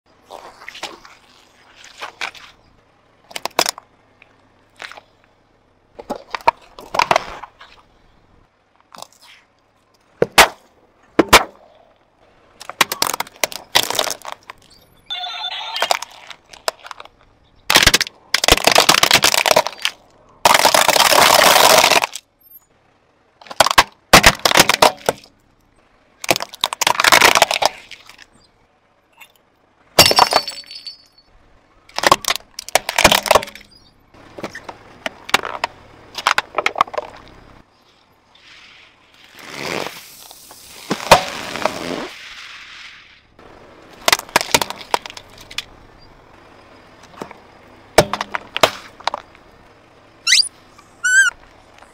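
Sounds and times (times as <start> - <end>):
tyre crushing objects: 12.6 - 14.6, 17.7 - 22.2, 23.4 - 25.3.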